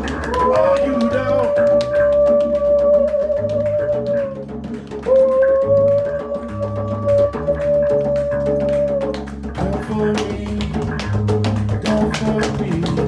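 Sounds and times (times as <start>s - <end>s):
bass guitar line: 0.0s - 13.0s
hand-drum percussion: 0.0s - 13.0s.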